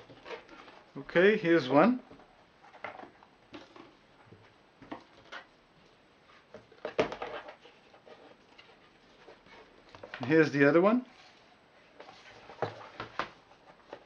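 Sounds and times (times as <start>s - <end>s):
cardboard knock and rustle: 6.6s - 7.6s, 12.1s - 14.0s
cardboard boards tapping and sliding: 12.0s - 14.0s.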